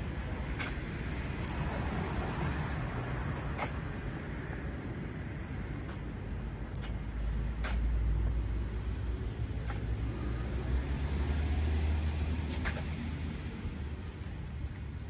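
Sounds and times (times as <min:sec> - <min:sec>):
motor vehicle rumbling: 0:00.0 - 0:15.0
footsteps on concrete: 0:05.8 - 0:10.1.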